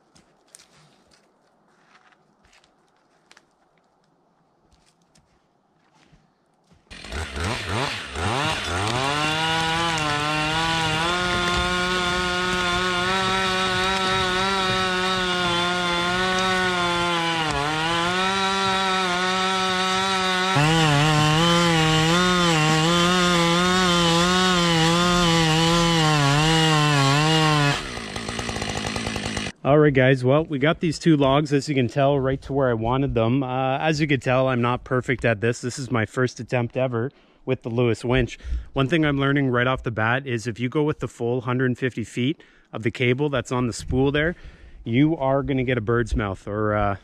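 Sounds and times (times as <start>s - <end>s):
chainsaw revving at full throttle: 6.9s - 29.6s.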